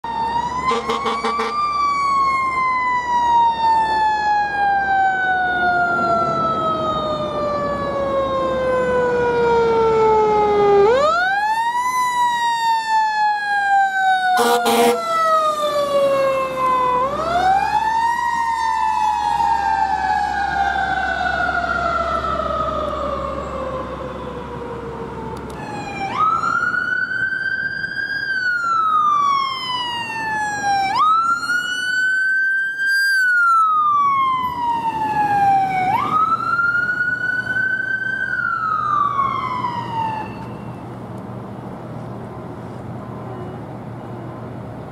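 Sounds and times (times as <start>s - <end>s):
sirens wailing: 0.0s - 41.8s.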